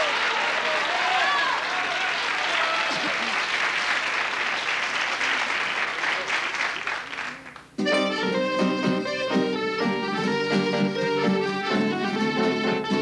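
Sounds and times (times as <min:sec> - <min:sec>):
audience applauding: 0:00.0 - 0:07.8
instrumental ensemble playing: 0:07.8 - 0:13.0.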